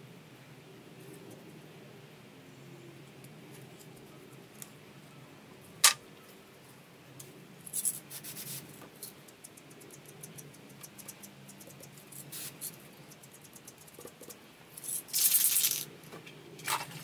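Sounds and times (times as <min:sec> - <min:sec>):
crackling ticks: 0:09.0 - 0:14.4.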